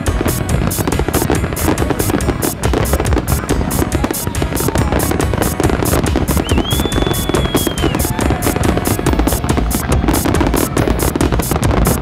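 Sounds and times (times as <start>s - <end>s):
fireworks bursting and crackling: 0.0s - 12.0s
loud music with fast beat: 0.0s - 12.0s
high whistle: 6.3s - 8.6s.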